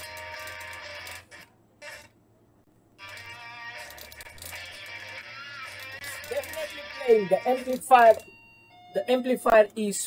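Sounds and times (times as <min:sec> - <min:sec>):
music through a bare speaker: 0:03.0 - 0:07.7.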